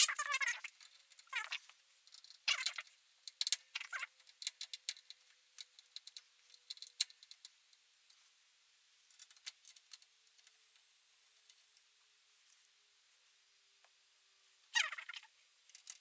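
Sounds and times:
small hard objects clicking: 0.0 - 7.8, 15.1 - 16.0.

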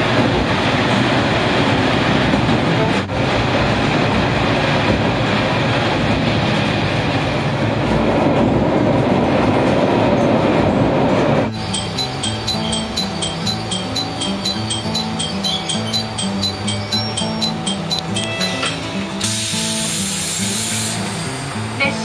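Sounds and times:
train wheels on rails: 0.0 - 21.8
diesel railcar engine: 0.0 - 22.0
repeating ringing tones: 11.5 - 18.9.

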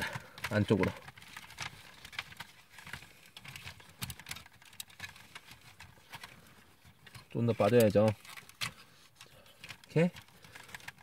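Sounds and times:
plastic toy parts clicking: 9.6 - 11.0.

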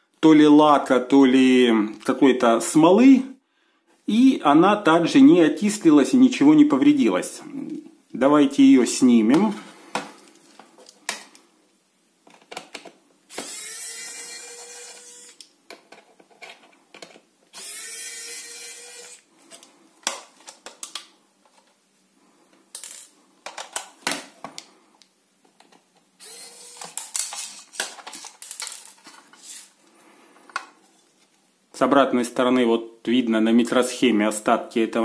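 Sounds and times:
electric screwdriver whirring: 13.3 - 15.4, 17.5 - 19.3, 26.2 - 27.8.

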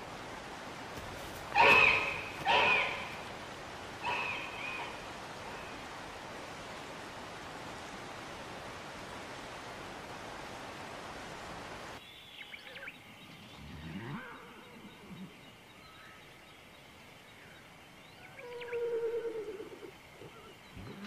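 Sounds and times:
steady hiss: 0.0 - 21.0
crow cawing: 1.5 - 3.3.

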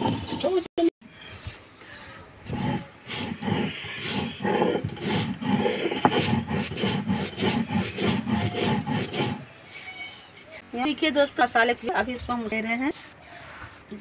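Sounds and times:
stone roller rasping on grinding stone: 0.0 - 0.7, 2.4 - 10.3, 12.5 - 14.0.

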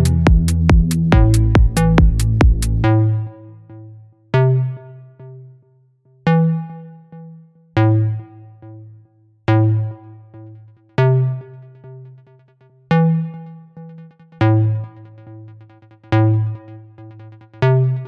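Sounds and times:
synthesizer chord over deep bass: 0.0 - 4.0.

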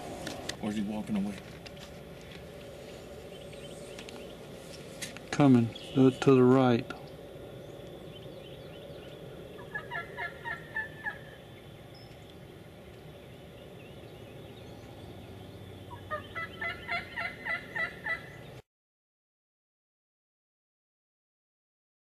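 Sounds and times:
turkey call yelps: 9.6 - 11.4, 15.9 - 18.3.

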